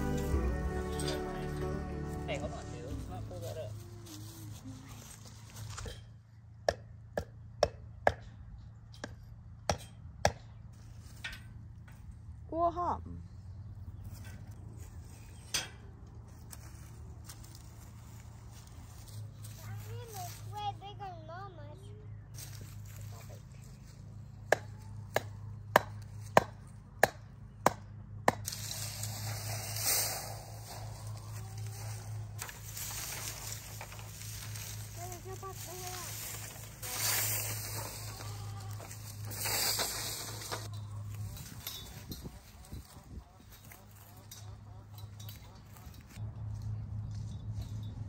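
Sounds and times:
wire fencing rustling and scraping: 0.0 - 6.3, 10.7 - 12.4, 13.9 - 21.0, 22.4 - 24.4, 28.4 - 48.0
hammer striking fence stake: 6.6 - 8.4, 9.0 - 10.6, 24.5 - 28.7.

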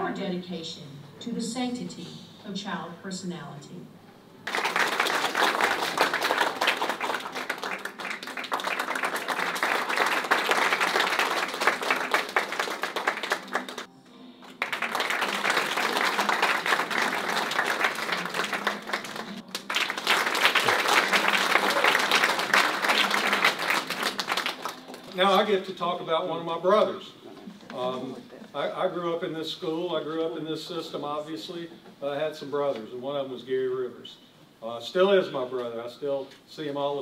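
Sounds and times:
audience applauding: 4.4 - 25.5.

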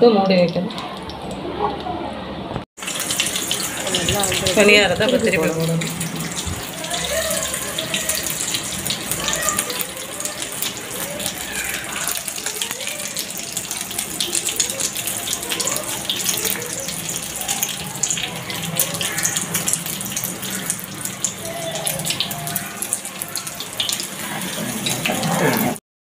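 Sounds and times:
batter sizzling in hot oil: 2.8 - 25.8.

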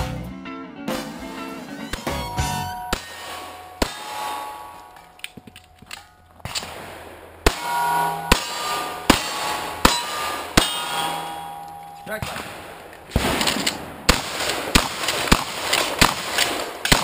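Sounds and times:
steel plate ringing: 2.0 - 6.6, 7.5 - 13.1
pistol shots: 12.2 - 17.0.

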